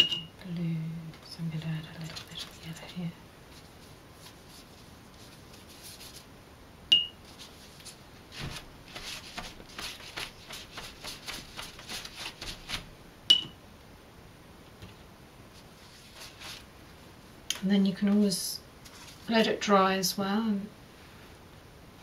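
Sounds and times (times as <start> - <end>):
brush strokes on paper: 3.5 - 6.3, 7.2 - 12.8, 15.5 - 16.7.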